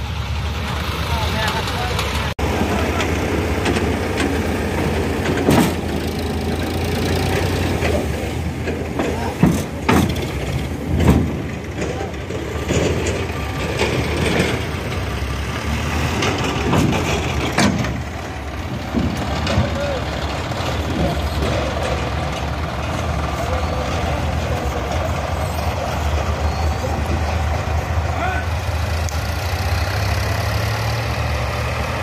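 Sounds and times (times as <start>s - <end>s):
tractor diesel engine running: 0.0s - 32.0s
soil load thumping: 1.4s - 32.0s.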